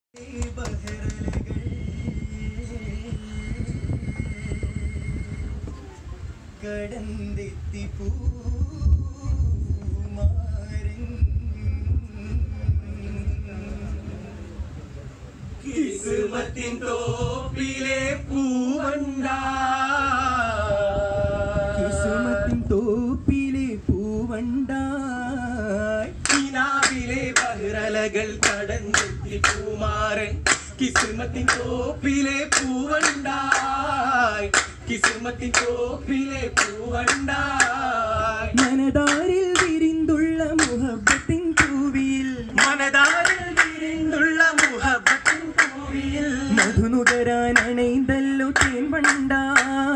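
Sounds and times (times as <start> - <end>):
rhythmic hand-clapping: 0.2 - 1.5, 26.2 - 27.6, 28.4 - 29.8, 30.4 - 31.8, 32.5 - 33.8, 34.5 - 35.8, 36.5 - 37.8, 38.5 - 39.9, 40.6 - 41.9, 42.6 - 47.8, 48.5 - 49.9
men singing together: 15.7 - 49.9.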